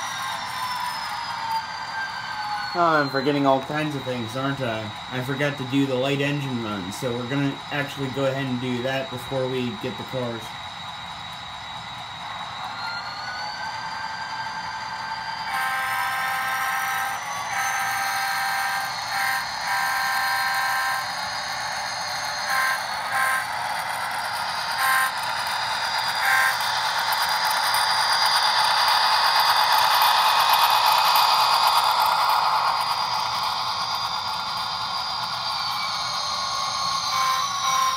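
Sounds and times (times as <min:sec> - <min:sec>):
locomotive running sound: 0:00.0 - 0:37.9
locomotive air horn: 0:15.5 - 0:21.0, 0:22.5 - 0:23.5, 0:24.8 - 0:25.1, 0:37.1 - 0:37.9.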